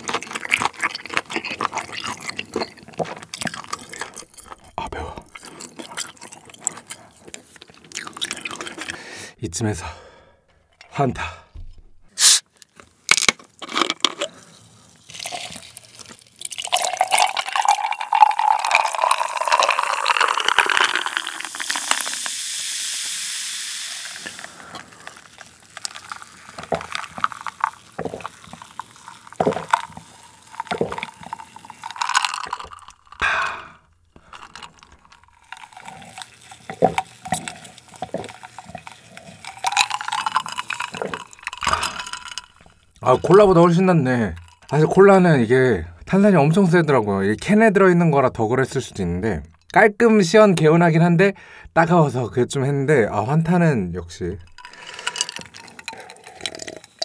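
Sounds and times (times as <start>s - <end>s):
gulps: 0.0s - 9.1s
soda fizzing: 14.4s - 45.2s, 54.4s - 57.0s
soda pouring into glass: 15.0s - 45.0s, 54.4s - 57.0s
ice clinking in glass: 15.2s - 22.3s, 24.0s - 33.2s, 34.4s - 44.9s, 54.4s - 57.0s.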